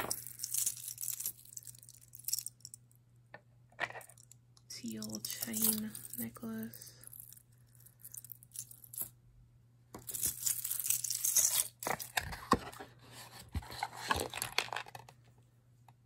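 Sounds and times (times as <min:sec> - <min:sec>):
jewelry clicking and clinking: 0:00.0 - 0:02.8, 0:03.9 - 0:09.2, 0:10.0 - 0:12.2.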